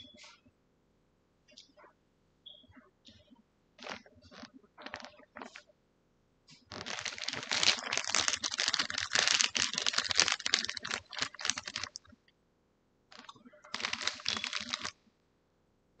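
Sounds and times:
rapid clicking and crackling: 0:06.5 - 0:12.2, 0:13.1 - 0:15.0.

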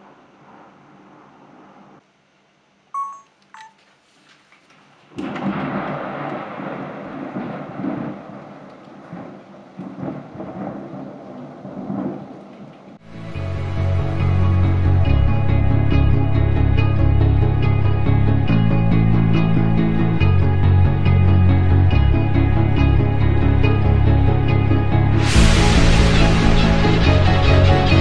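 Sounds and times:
thunder rumbling: 0:00.0 - 0:02.0, 0:05.1 - 0:13.0, 0:25.2 - 0:28.0
short electronic beeps: 0:03.0 - 0:03.8
downpour hissing: 0:25.2 - 0:28.0.

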